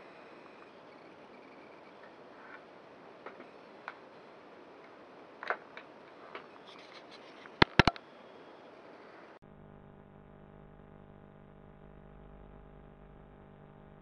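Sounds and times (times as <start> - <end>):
clicks of handling electronic gear: 5.4 - 8.0
sharp loud clicks: 7.6 - 8.0.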